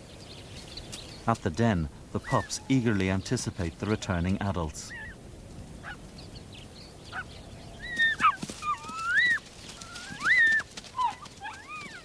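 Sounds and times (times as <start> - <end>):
wolf pups whining and yelping: 2.2 - 2.8, 4.9 - 5.2, 5.8 - 6.0, 7.1 - 12.0.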